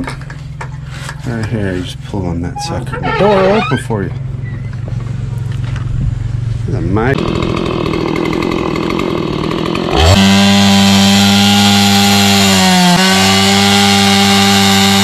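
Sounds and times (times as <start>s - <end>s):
chainsaw cutting log: 7.1s - 15.0s.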